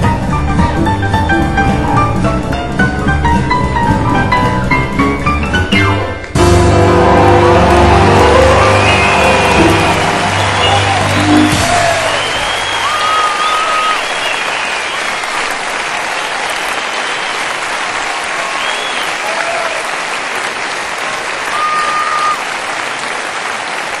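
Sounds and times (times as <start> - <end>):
audience applauding: 6.2 - 24.0
short whistles: 12.1 - 15.1, 18.6 - 19.2, 21.5 - 22.4.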